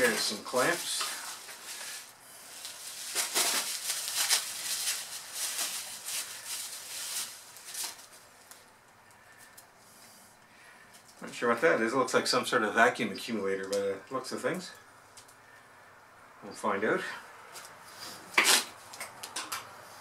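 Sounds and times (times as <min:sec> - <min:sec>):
plastic wrapping crinkling: 0:00.0 - 0:09.7.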